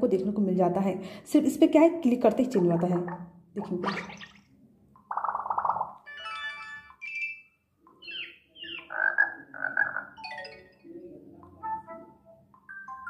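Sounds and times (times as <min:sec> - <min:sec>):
frog-like croaks: 0:05.0 - 0:06.1, 0:08.1 - 0:10.2
electronic chirps: 0:05.1 - 0:08.9, 0:10.0 - 0:13.0
phone notification tones: 0:06.0 - 0:07.6, 0:10.2 - 0:13.0.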